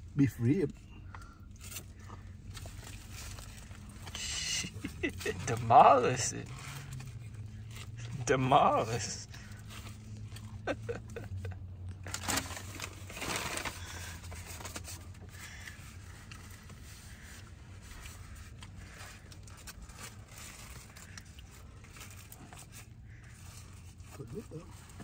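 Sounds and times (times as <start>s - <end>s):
low steady hum: 0.0s - 25.0s
foil wrapper crinkling: 11.2s - 15.7s.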